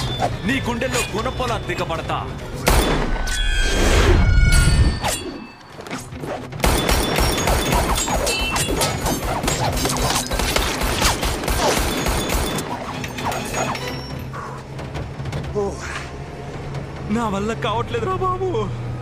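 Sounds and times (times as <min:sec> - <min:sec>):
action film music: 0:00.0 - 0:19.0
gunshots: 0:06.5 - 0:12.7.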